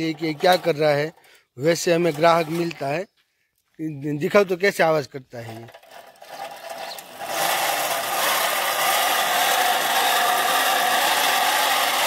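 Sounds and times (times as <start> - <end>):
grinding machine rasping whir: 0.0 - 0.8, 5.7 - 12.0.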